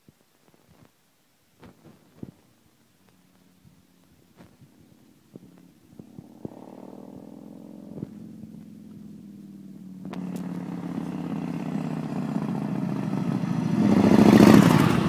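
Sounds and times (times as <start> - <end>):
motorcycle engine running: 3.0 - 15.0.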